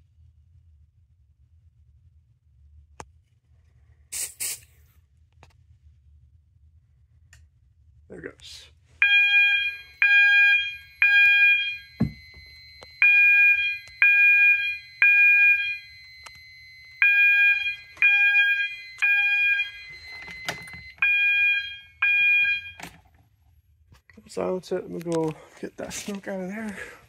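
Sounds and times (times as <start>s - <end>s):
fire alarm horn beeping: 9.0s - 22.9s.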